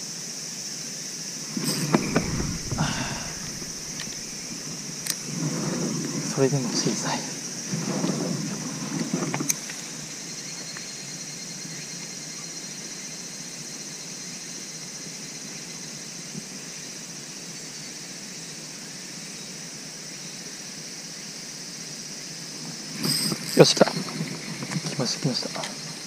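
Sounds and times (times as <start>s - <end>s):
insect chorus drone: 0.0s - 26.0s.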